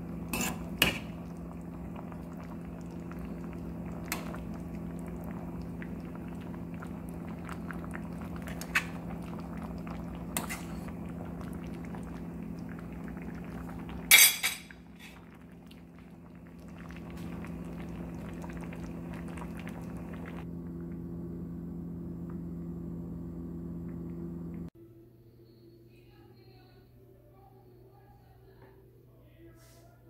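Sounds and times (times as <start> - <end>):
sauce simmering and bubbling: 0.0 - 20.8
low hum: 0.0 - 29.0.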